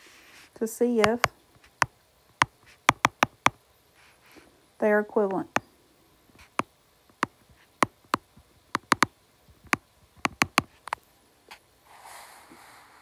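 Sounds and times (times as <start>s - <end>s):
stylus tapping on glass screen: 1.0s - 3.6s, 6.4s - 10.7s.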